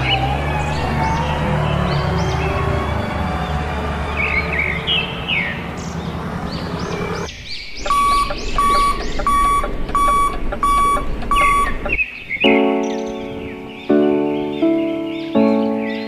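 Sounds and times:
truck reversing beeper: 0.0s - 12.0s
birds chirping: 0.0s - 16.0s.

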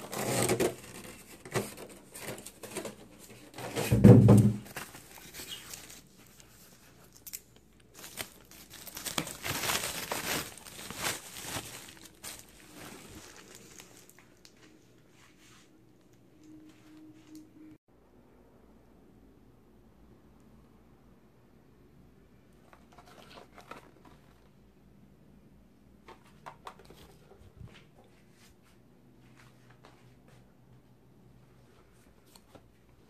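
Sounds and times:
plastic bag crinkling: 4.6s - 14.6s.

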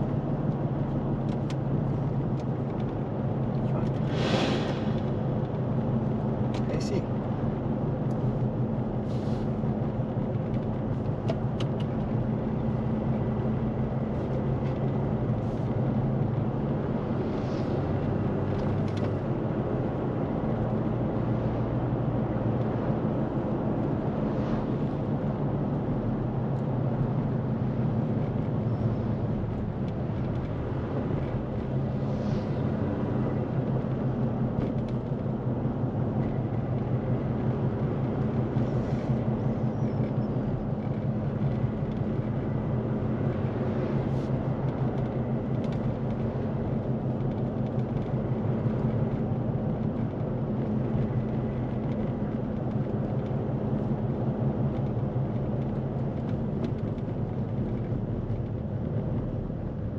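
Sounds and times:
road noise: 0.0s - 59.9s.

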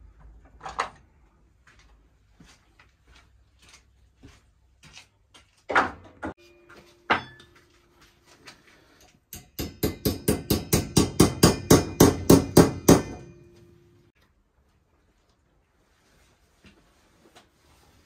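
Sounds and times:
hammer striking metal: 6.4s - 7.6s, 9.3s - 14.1s.

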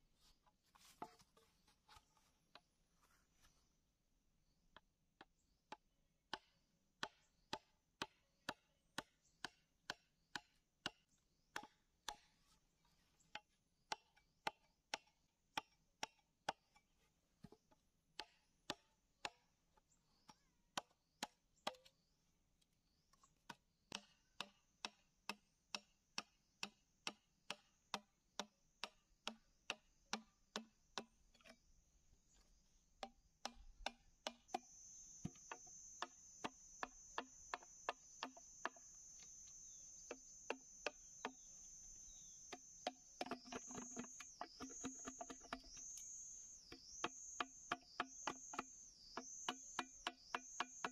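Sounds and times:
machete chopping bamboo: 5.7s - 12.4s, 13.3s - 16.8s, 20.3s - 21.9s, 42.5s - 50.9s.

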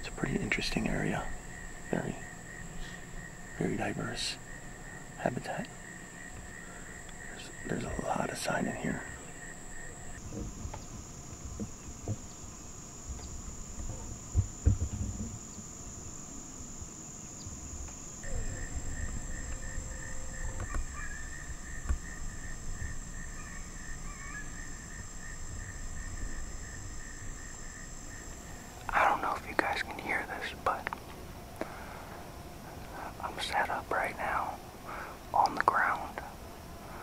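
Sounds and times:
insects trilling: 0.0s - 37.0s
lower pulsing insect trill: 0.0s - 37.0s
low thumps: 10.2s - 15.6s, 17.8s - 23.0s
low rumble: 18.2s - 23.2s.

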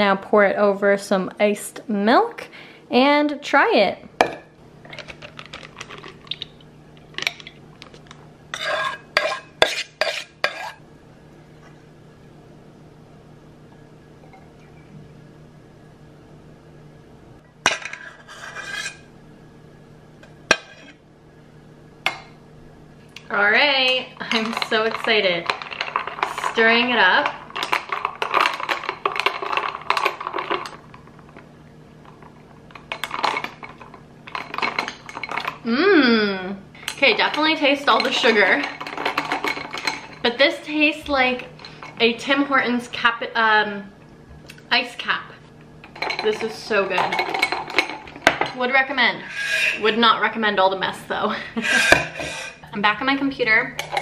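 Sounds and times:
metal spoon scraping a bowl: 8.5s - 10.8s, 17.8s - 19.1s
ice crackling and clinking: 23.9s - 31.4s, 32.0s - 35.6s.

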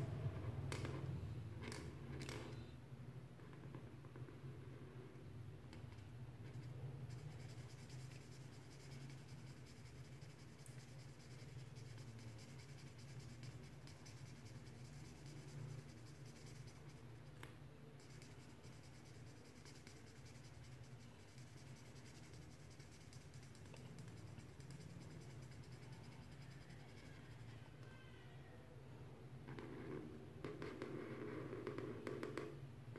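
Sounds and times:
marker scratching on paper: 6.4s - 17.4s, 18.0s - 27.6s.

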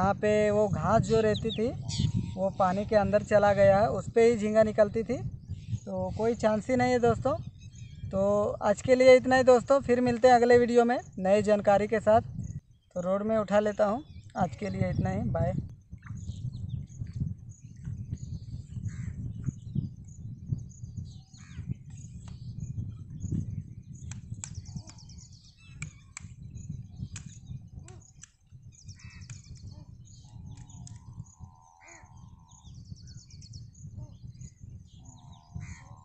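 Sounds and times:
crows cawing: 31.6s - 32.2s, 35.6s - 36.0s.

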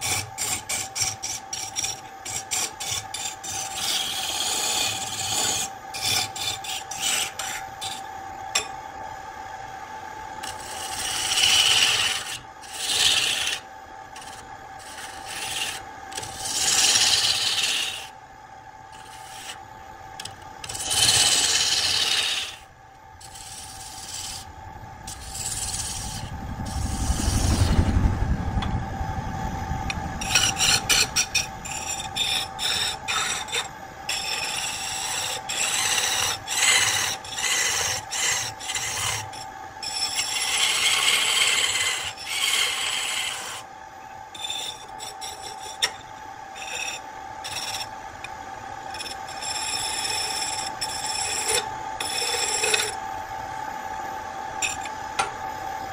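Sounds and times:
chisel scraping wood on lathe: 0.0s - 8.1s, 10.4s - 18.1s, 18.9s - 19.6s, 20.2s - 24.5s, 25.1s - 26.3s, 30.2s - 43.6s, 44.4s - 46.0s, 46.6s - 47.9s, 48.9s - 53.0s, 54.6s - 54.9s
lathe motor hum: 0.0s - 18.2s, 18.8s - 43.7s, 44.3s - 55.9s.

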